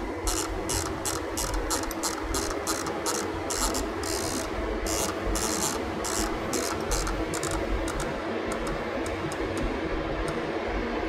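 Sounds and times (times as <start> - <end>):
mill spindle humming: 0.0 - 11.0
handwheel ticking: 0.3 - 9.4.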